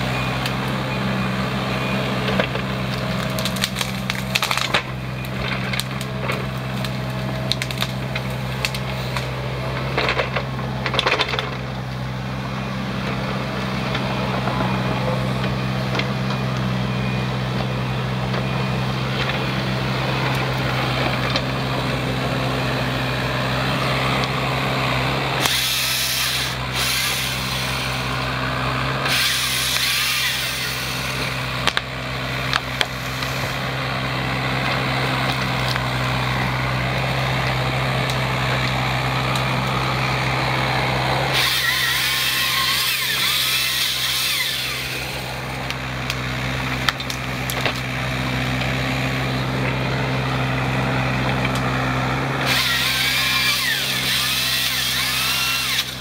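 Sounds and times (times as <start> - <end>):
diesel engine running: 0.0 - 56.0
hydraulic saw cutting wood: 0.0 - 56.0
sharp wood cracks: 2.5 - 11.6, 41.3 - 48.0.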